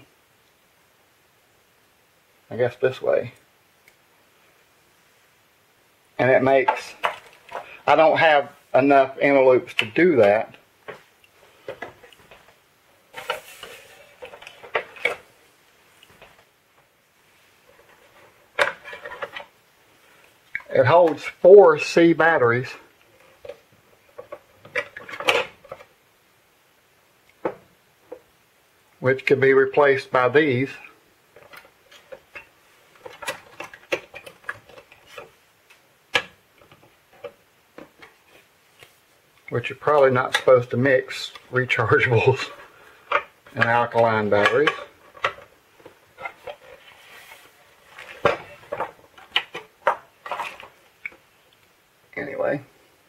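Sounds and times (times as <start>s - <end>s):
plastic scraping and knocking: 42.2s - 50.8s.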